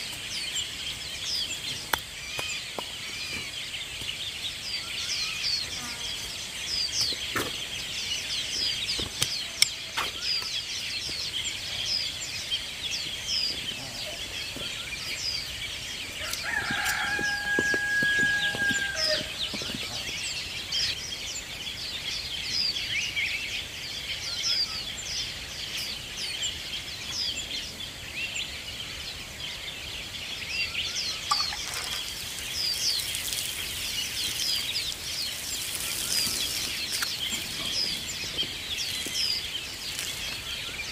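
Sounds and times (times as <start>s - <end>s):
water sprinkling onto soil: 0.0s - 20.9s, 30.5s - 40.9s
small birds chirping: 0.0s - 40.9s
rooster crowing: 16.2s - 19.5s.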